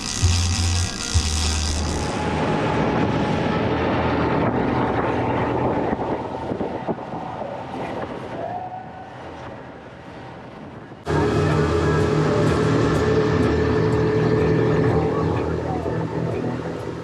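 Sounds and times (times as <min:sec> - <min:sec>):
boat engine running: 0:00.0 - 0:07.8, 0:11.0 - 0:17.0
rush of wind and water: 0:02.2 - 0:11.1.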